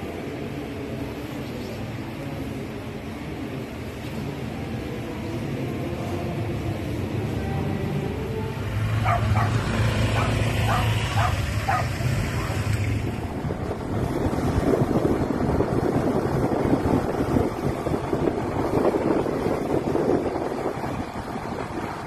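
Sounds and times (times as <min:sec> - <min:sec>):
wind buffeting microphone: 0:08.9 - 0:22.0
dog barks: 0:09.0 - 0:12.6.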